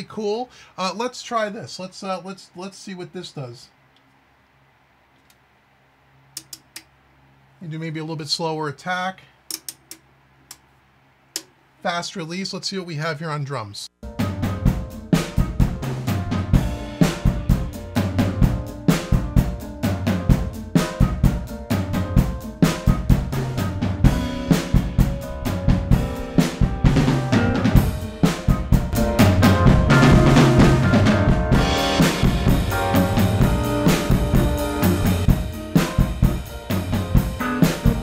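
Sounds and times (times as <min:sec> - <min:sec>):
distorted drum kit beat: 0:14.0 - 0:38.0.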